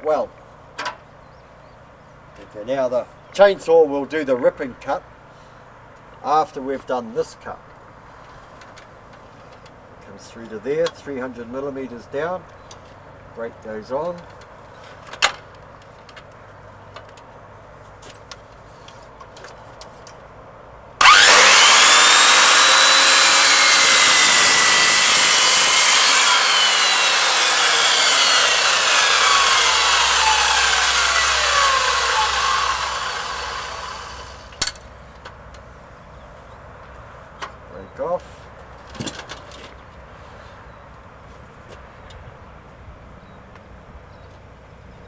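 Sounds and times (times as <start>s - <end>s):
circular saws cutting timber: 21.0s - 34.7s.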